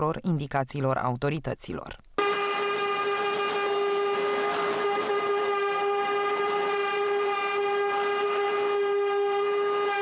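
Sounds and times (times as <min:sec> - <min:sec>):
vehicle horn blast: 0:02.2 - 0:10.0.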